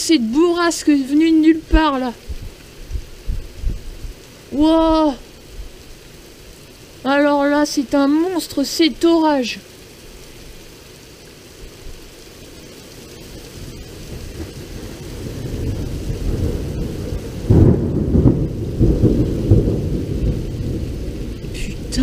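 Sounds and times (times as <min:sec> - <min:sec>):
steady rain: 0:00.0 - 0:22.0
thunder rumbling and cracking: 0:00.2 - 0:05.8, 0:13.2 - 0:22.0.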